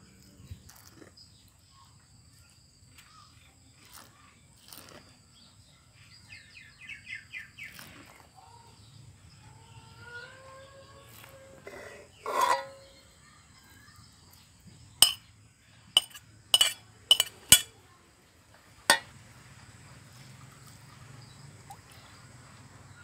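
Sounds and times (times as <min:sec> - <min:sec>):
metal spoon clicking on plate: 0:16.0 - 0:17.7.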